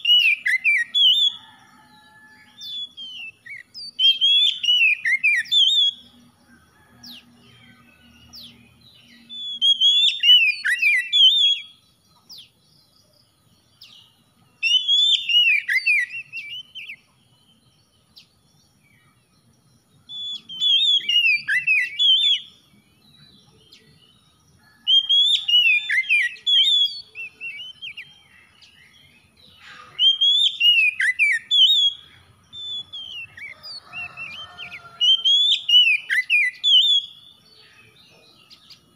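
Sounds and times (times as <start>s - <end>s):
bird singing whistled phrases: 0.0s - 1.6s, 2.6s - 6.1s, 8.4s - 11.9s, 14.6s - 17.0s, 20.0s - 22.6s, 24.8s - 29.2s, 29.8s - 38.8s.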